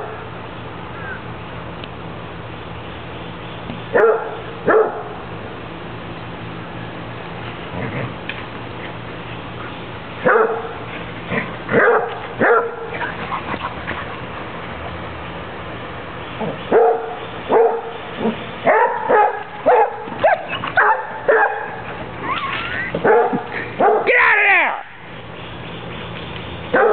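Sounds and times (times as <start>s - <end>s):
dogs barking: 3.9s - 5.2s, 10.2s - 10.9s, 11.7s - 14.4s, 16.4s - 24.2s.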